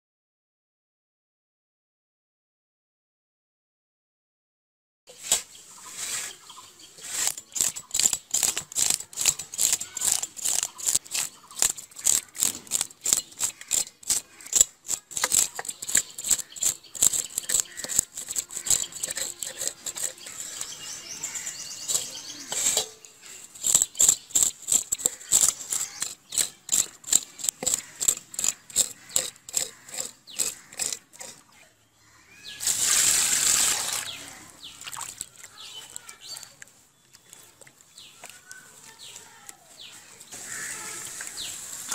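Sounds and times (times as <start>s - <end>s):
knife scraping fish scales: 5.1s - 31.5s
water gushing into bowl: 32.6s - 34.2s.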